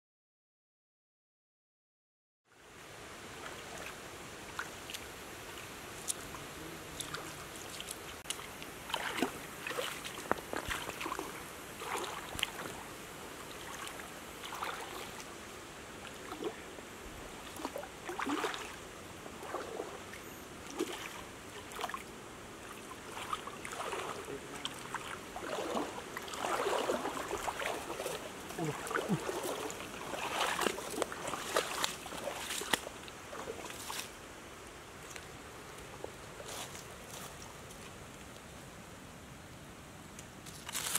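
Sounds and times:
flowing water hiss: 0:02.5 - 0:40.6
legs splashing through stream: 0:03.2 - 0:38.4.

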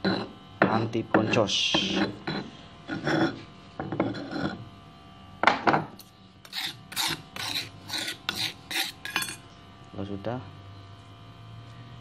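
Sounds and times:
stone pestle grinding in mortar: 0:00.0 - 0:04.7, 0:06.4 - 0:09.4.

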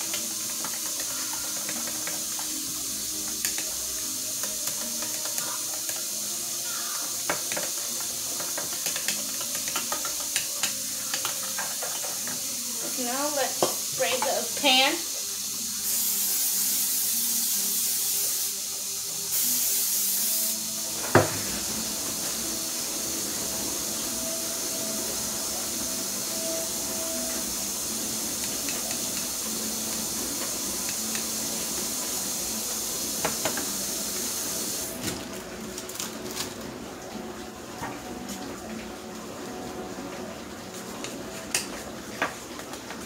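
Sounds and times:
steady hiss: 0:00.0 - 0:36.4
cooking spray hissing: 0:00.0 - 0:43.0
knock: 0:21.1 - 0:21.5.

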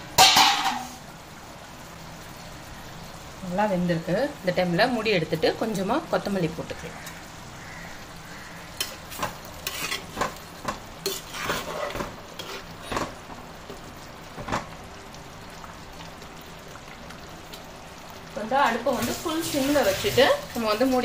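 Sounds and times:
low sizzle: 0:00.0 - 0:21.0
spoon scraping pan: 0:08.3 - 0:13.2.

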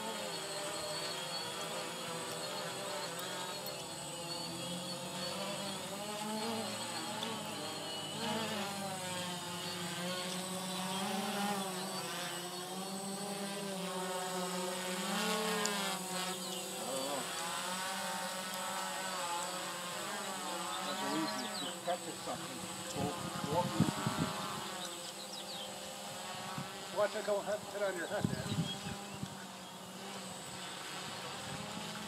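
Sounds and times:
drone propellers humming: 0:00.0 - 0:32.0.

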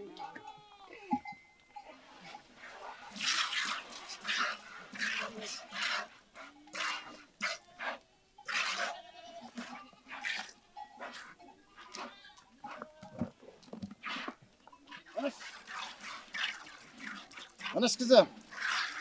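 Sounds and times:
goats bleating: 0:00.0 - 0:02.0, 0:06.5 - 0:13.4.

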